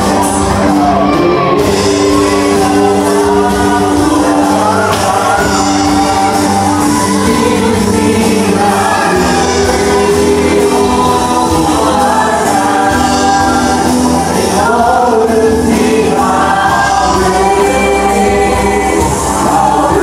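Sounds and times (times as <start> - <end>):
band with guitars and drums: 0.0 - 20.0
singers singing together: 0.0 - 20.0.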